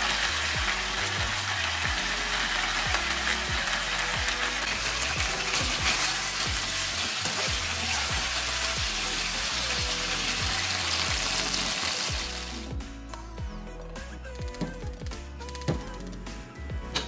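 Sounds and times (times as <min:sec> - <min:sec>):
chicken sizzling in hot oil: 0:00.0 - 0:12.7.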